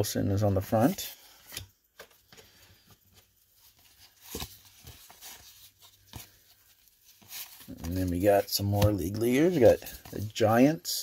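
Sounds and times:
cards rustling: 0.6 - 11.0.

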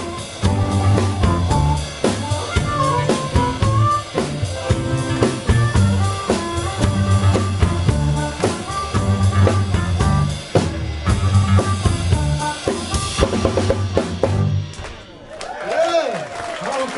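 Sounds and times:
amplified harmonica: 0.0 - 14.6
blues band playing: 0.0 - 15.4.

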